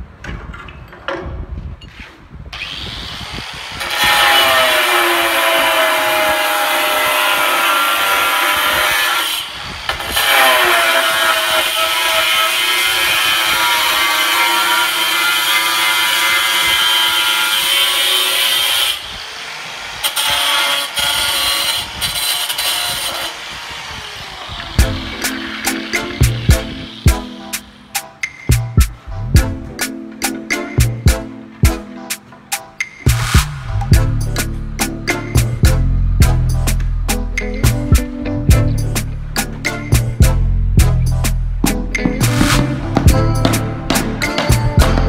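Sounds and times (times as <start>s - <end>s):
angle grinder cutting tile: 2.6s - 27.1s.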